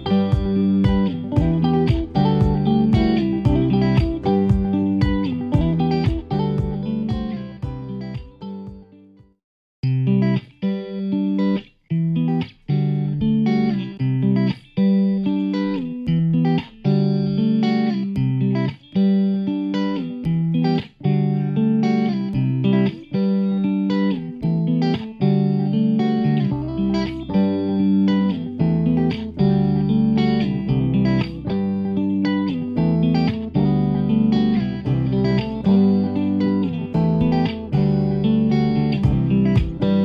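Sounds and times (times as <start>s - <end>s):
bass line: 0.0s - 8.8s, 32.8s - 40.0s
plucked guitar notes: 0.0s - 9.2s, 9.8s - 40.0s.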